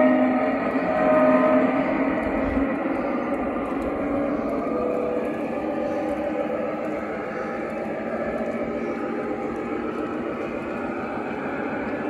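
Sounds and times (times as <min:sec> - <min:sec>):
model train horn: 0:00.0 - 0:02.0
diesel engine drone: 0:00.0 - 0:12.0.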